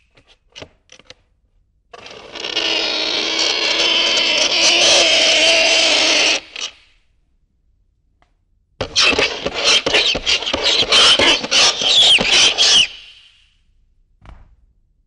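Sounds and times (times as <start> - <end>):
fingernails scraping chalkboard: 8.8 - 13.0.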